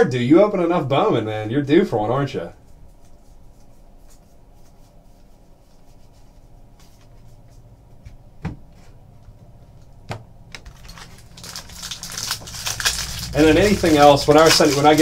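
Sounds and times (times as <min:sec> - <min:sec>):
low room hum: 0:00.0 - 0:15.0
trading cards handled: 0:10.6 - 0:15.0.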